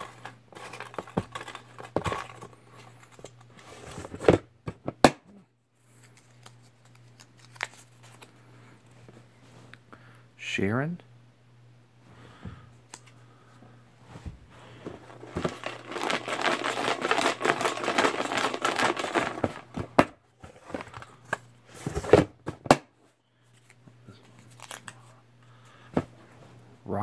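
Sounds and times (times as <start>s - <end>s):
paper slips rustling: 15.0s - 20.0s.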